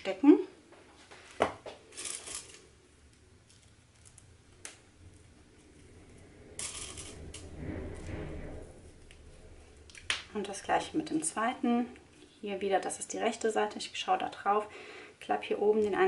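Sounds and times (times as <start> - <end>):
webbing rustling: 1.0 - 12.4.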